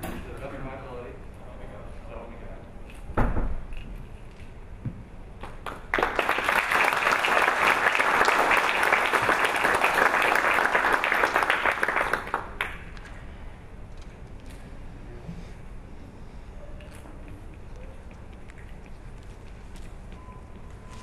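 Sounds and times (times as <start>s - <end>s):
audience applauding: 5.6s - 12.8s.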